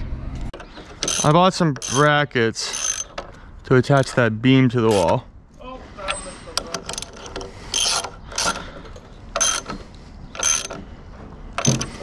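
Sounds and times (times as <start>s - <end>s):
ratchet wrench clicking: 0.9s - 2.1s, 2.7s - 3.2s, 6.6s - 8.6s, 9.4s - 10.8s.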